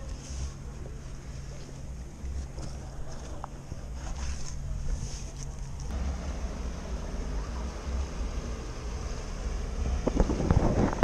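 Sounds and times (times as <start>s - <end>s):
jet ski engine humming: 5.9s - 11.0s
wind on microphone: 9.9s - 11.0s.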